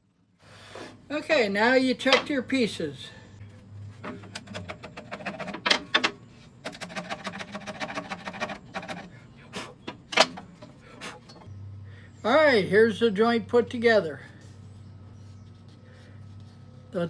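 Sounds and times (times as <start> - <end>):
chisel scraping wood: 4.0 - 9.2.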